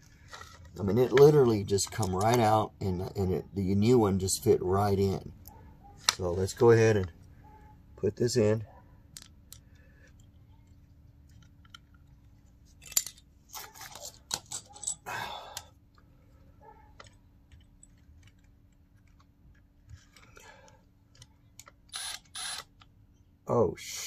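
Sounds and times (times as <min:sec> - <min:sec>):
faint steady hum: 0:00.0 - 0:24.0
metal parts clattering and scraping: 0:11.3 - 0:15.1.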